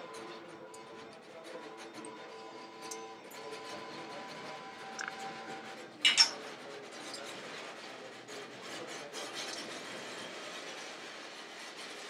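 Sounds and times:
faint clicks: 5.0 - 5.2.

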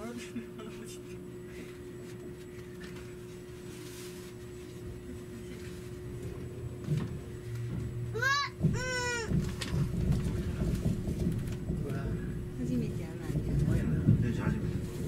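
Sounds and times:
faint steady hum: 0.0 - 15.0
train cabin low rumble: 0.0 - 15.0
wheels knocking: 7.8 - 15.0.

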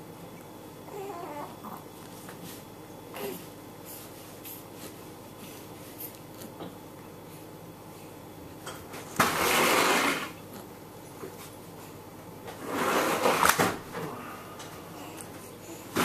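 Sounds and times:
close rustling noise: 1.9 - 6.6, 9.0 - 13.8.

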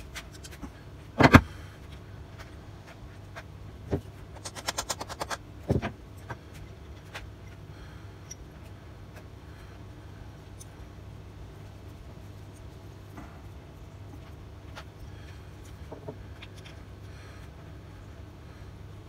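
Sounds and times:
steady low hum: 0.0 - 19.0
metal parts clicking: 4.4 - 5.4.

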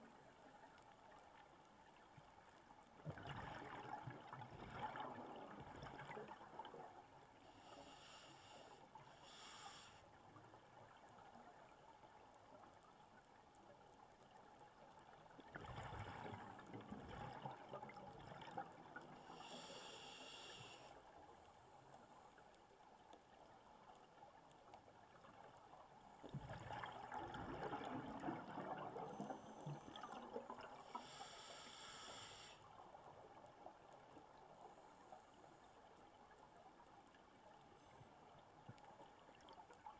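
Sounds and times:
hissing regulator inhales: 7.5 - 10.0, 19.2 - 21.0, 30.9 - 32.6
gurgling exhaled bubbles: 26.4 - 30.8.

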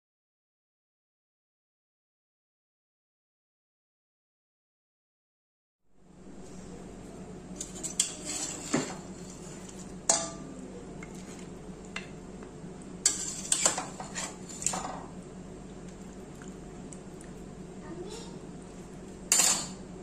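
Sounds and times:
steady low hum: 5.9 - 20.0
utensils clinking on metal pot: 7.6 - 12.1, 13.0 - 15.1, 19.3 - 19.8.

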